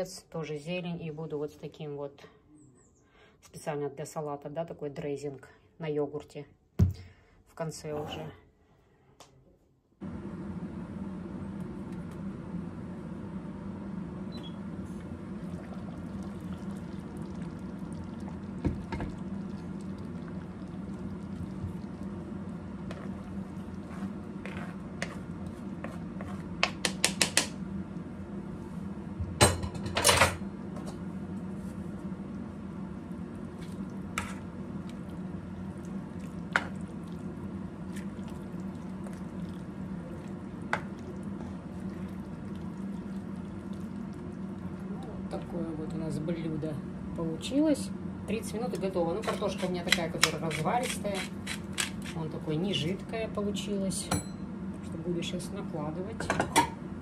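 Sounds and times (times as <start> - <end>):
stew simmering in a pot: 10.9 - 29.0, 31.4 - 46.0.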